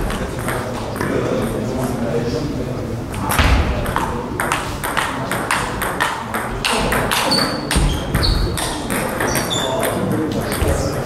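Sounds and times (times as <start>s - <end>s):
shoes squeaking on floor: 7.1s - 10.0s.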